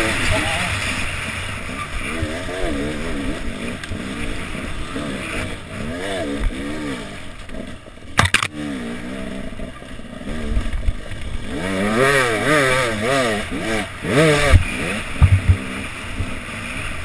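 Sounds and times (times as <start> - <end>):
motorcycle engine revving: 0.0 - 17.0
sharp knock: 8.2 - 8.5.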